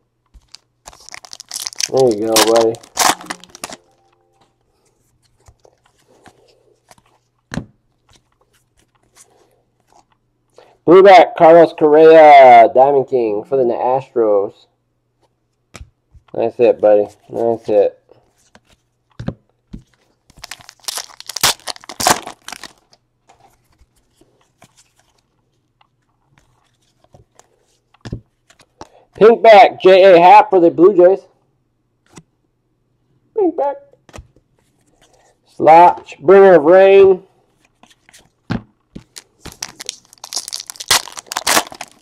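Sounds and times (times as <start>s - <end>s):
cards flipped and rustling: 0.3s - 4.0s, 5.1s - 7.4s, 8.0s - 10.2s, 17.1s - 19.2s, 19.8s - 28.9s, 37.6s - 42.0s
wrapper tearing and crinkling: 0.4s - 4.0s, 20.3s - 23.0s, 39.0s - 42.0s.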